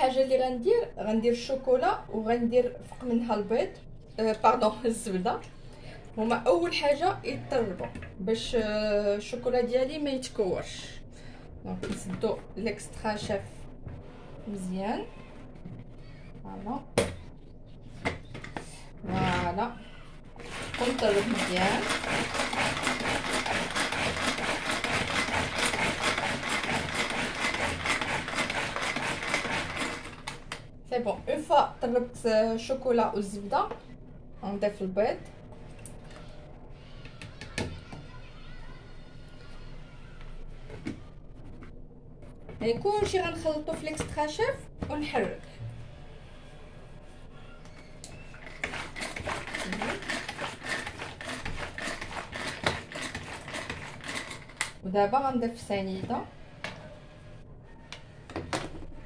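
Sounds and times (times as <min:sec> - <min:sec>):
hand-cranked mixer rasping and clicking: 0:20.4 - 0:30.6, 0:48.4 - 0:54.8.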